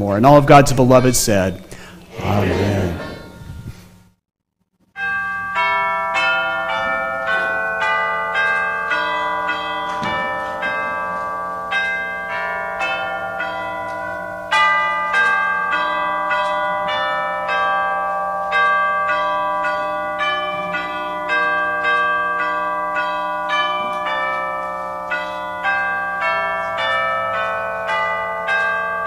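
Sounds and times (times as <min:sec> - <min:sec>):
tubular chimes melody: 0:02.1 - 0:03.8.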